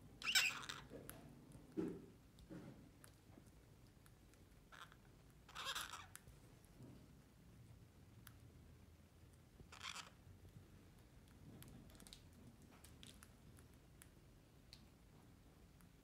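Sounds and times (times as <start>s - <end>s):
beaks clicking and scratching: 9.7s - 10.2s.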